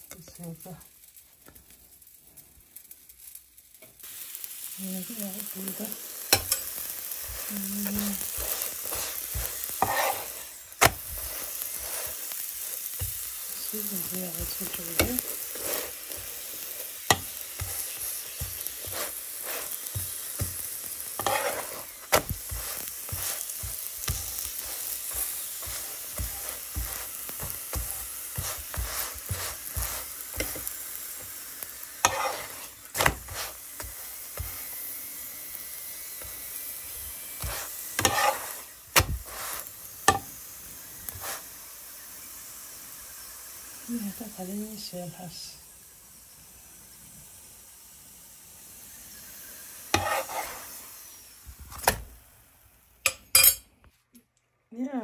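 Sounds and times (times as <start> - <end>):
flatbread sizzling in oil: 0.0 - 53.8
metal spoon scraping a pan: 5.4 - 34.8, 37.2 - 40.3, 49.9 - 50.8, 53.1 - 53.6.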